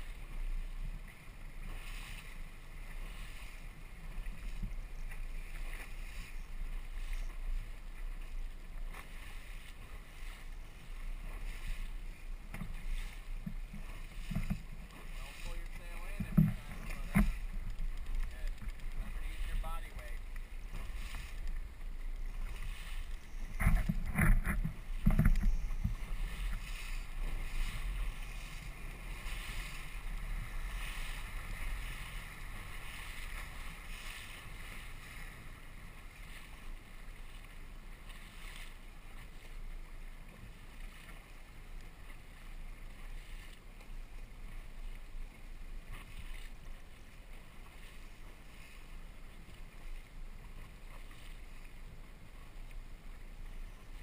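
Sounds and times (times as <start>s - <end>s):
wind on microphone: 0.0s - 40.0s
outboard motor running: 0.0s - 54.0s
water rushing past hull: 0.0s - 54.0s.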